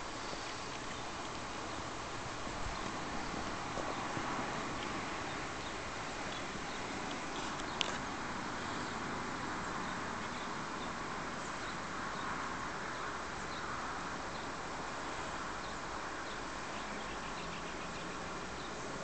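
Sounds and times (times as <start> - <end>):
outdoor background noise: 0.0 - 19.0.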